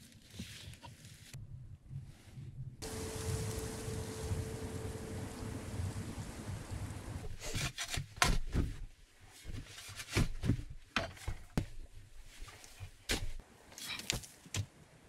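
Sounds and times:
wind noise: 0:01.4 - 0:07.4.

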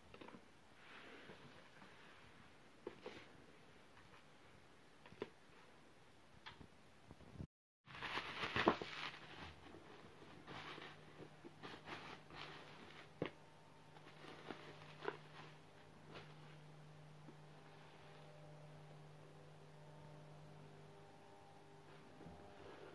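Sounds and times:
low steady hum: 0:00.0 - 0:22.9
bubble wrap crinkling: 0:07.8 - 0:18.6.

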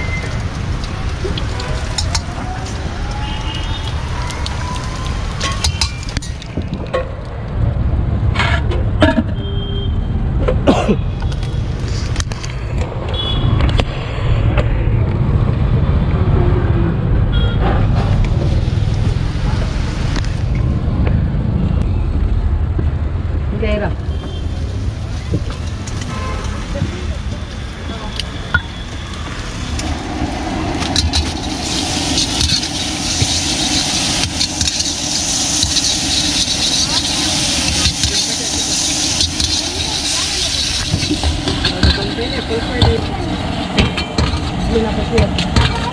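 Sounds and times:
food sizzling in a wok: 0:00.0 - 0:06.6, 0:29.2 - 0:45.9
gas burner roaring: 0:00.0 - 0:08.5, 0:28.2 - 0:45.9
metal spatula scraping a wok: 0:30.8 - 0:45.9.

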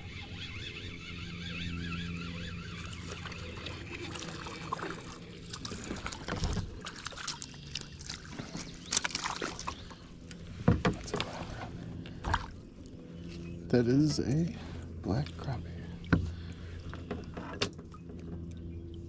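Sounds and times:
water sloshing: 0:02.6 - 0:13.7, 0:14.6 - 0:19.0
knocks and clicks against kayak: 0:10.3 - 0:11.4.

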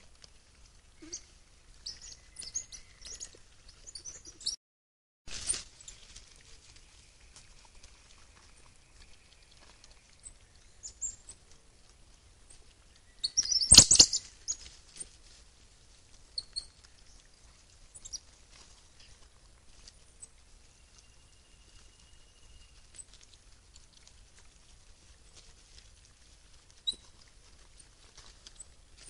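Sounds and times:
rustling in dry leaves: 0:05.3 - 0:29.0.

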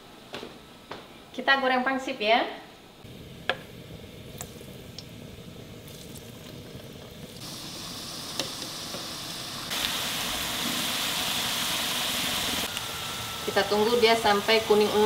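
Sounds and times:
deep-frying sizzle in oil: 0:03.5 - 0:15.0.

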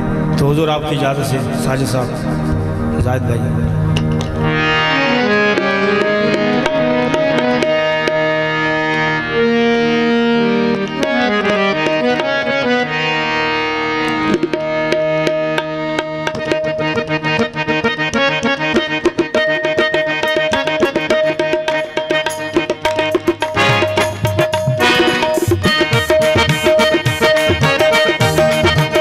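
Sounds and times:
harmonium melody: 0:00.0 - 0:29.0
tabla strokes: 0:14.1 - 0:29.0.

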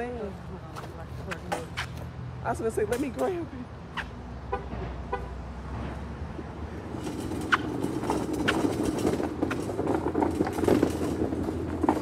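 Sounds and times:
metal cart rattling on concrete: 0:06.9 - 0:12.0.

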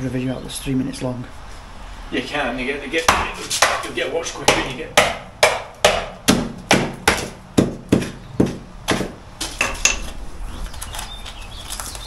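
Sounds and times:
hand tool chopping into plasterboard: 0:04.5 - 0:09.9.

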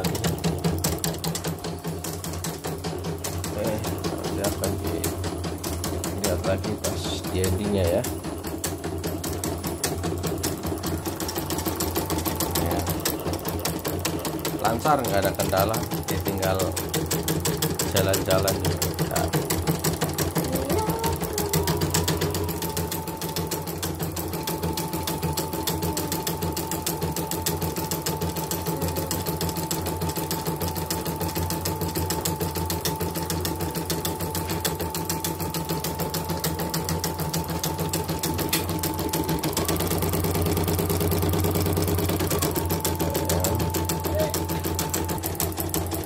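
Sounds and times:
motor whine: 0:03.5 - 0:46.0.

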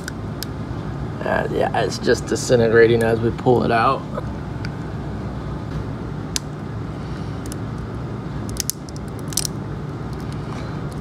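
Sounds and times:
steady low hum: 0:00.0 - 0:11.0
brittle plastic clicking and cracking: 0:08.5 - 0:10.3.

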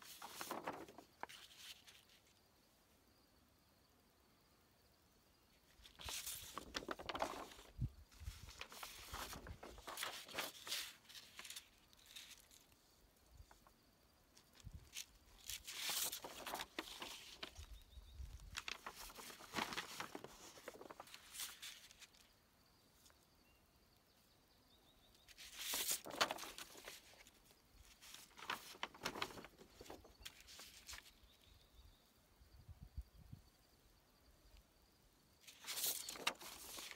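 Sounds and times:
paper rustling and crackling: 0:00.0 - 0:02.3, 0:05.7 - 0:12.8, 0:14.3 - 0:22.3, 0:25.3 - 0:31.3, 0:35.4 - 0:36.9.

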